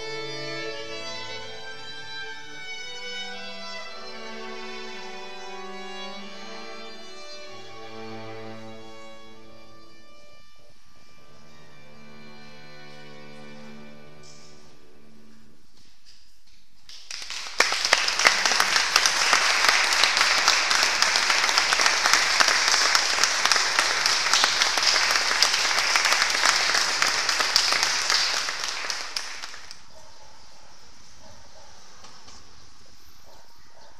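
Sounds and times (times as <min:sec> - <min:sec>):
audience applauding: 0:16.9 - 0:29.9.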